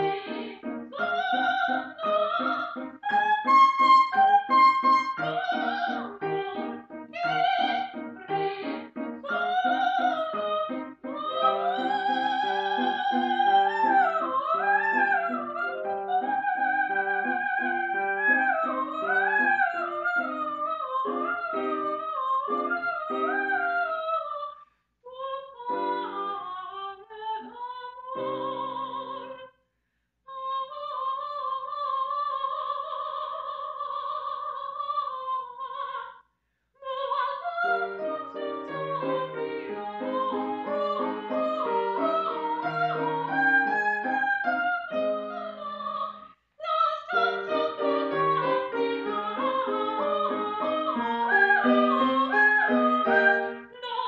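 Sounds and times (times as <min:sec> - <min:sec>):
piano accompaniment: 0:00.0 - 0:23.8, 0:37.7 - 0:46.2, 0:47.1 - 0:53.8
soprano singing opera: 0:00.0 - 0:29.6, 0:30.3 - 0:36.2, 0:36.8 - 0:54.0.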